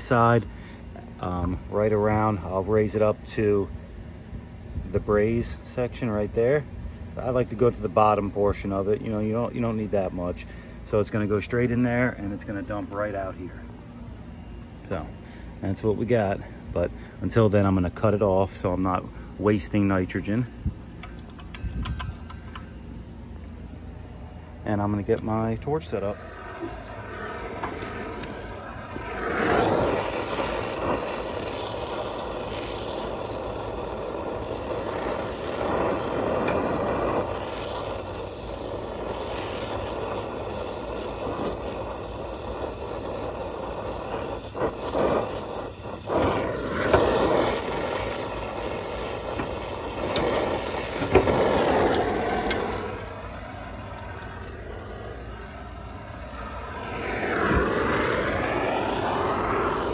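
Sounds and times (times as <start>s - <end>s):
brazing torch flame hissing: 0.0s - 59.9s.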